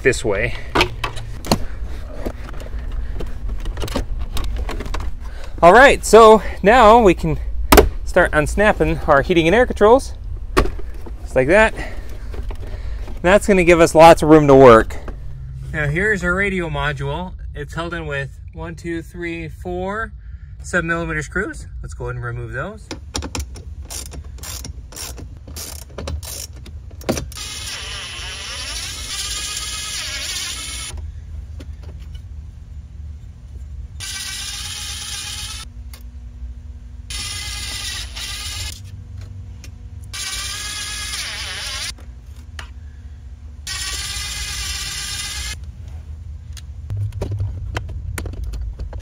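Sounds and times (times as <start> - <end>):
cordless drill motor whining: 27.4 - 31.0, 34.0 - 35.7, 40.1 - 42.0, 43.7 - 45.6.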